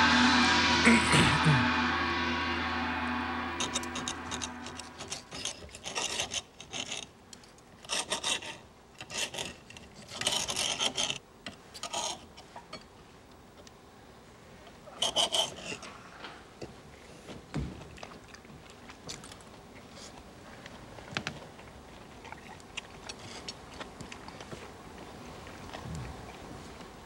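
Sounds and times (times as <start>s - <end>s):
knives scraping on iron plates: 3.6s - 7.0s.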